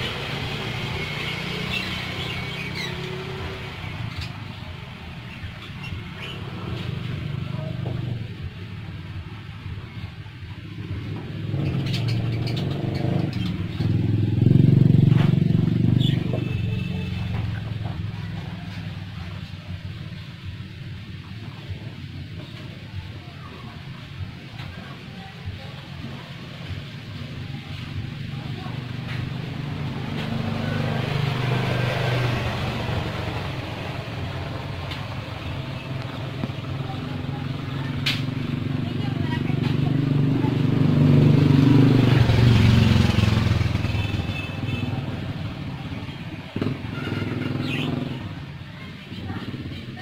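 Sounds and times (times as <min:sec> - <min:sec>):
vehicle engine passing: 0:00.0 - 0:09.0, 0:10.6 - 0:21.2, 0:25.2 - 0:50.0
budgerigars chirping: 0:01.2 - 0:03.2.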